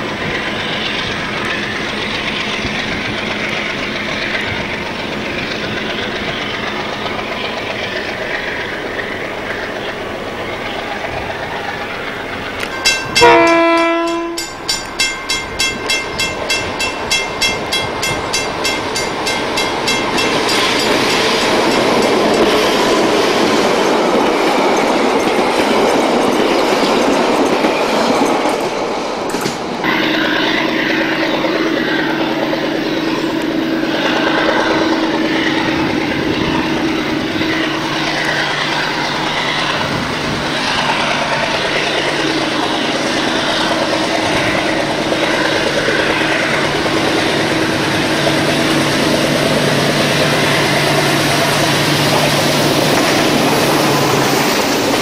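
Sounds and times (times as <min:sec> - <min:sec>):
diesel train drone: 0:00.0 - 0:55.0
train wheels clattering over rail joints: 0:00.0 - 0:55.0
diesel locomotive horn blast: 0:13.0 - 0:14.6, 0:29.8 - 0:32.4.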